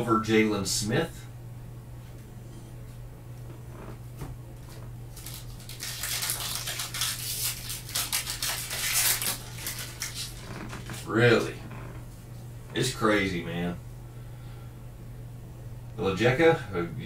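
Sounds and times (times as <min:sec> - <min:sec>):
wrapper tearing and crinkling: 0:05.1 - 0:11.1.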